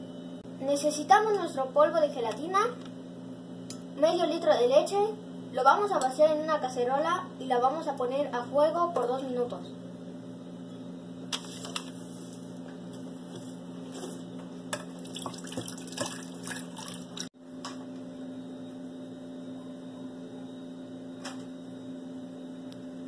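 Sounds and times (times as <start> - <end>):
low electrical hum: 0.0 - 23.0
milk pouring and splashing: 15.0 - 17.3.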